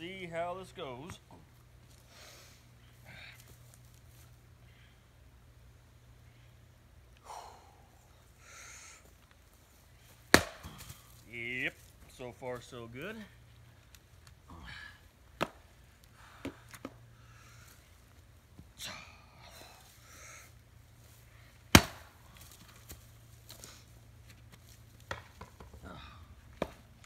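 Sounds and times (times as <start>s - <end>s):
maul striking firewood: 10.2s - 11.2s, 15.3s - 15.7s, 16.3s - 17.0s, 21.6s - 23.7s, 25.0s - 26.8s.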